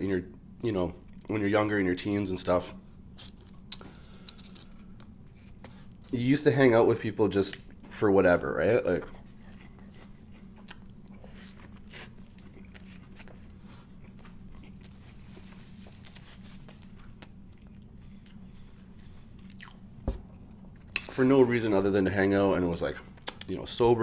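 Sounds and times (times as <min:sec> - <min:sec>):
person chewing: 0:09.0 - 0:21.1.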